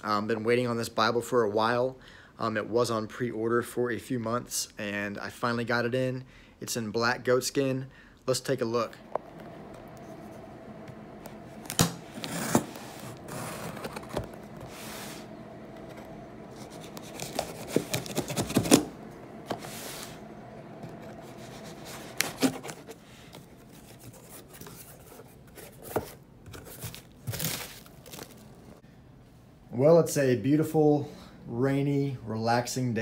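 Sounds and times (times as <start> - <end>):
faint steady hum: 0.0 - 33.0
cardboard box handling noises: 11.3 - 18.9, 20.8 - 28.4
rustling of packing peanuts: 11.4 - 15.3, 16.5 - 18.9, 21.1 - 28.8.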